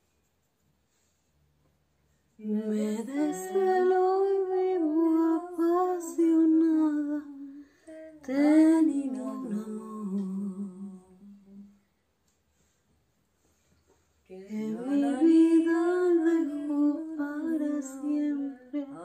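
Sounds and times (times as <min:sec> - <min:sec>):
woman singing slow melody: 0:02.4 - 0:11.8, 0:14.3 - 0:19.0.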